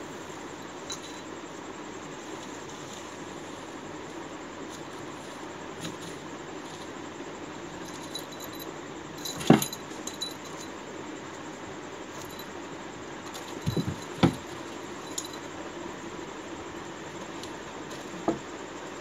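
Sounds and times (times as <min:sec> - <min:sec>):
steady hiss: 0:00.0 - 0:19.0
collar bell jingling: 0:00.8 - 0:01.3, 0:07.7 - 0:10.9, 0:12.1 - 0:12.6, 0:13.3 - 0:15.6.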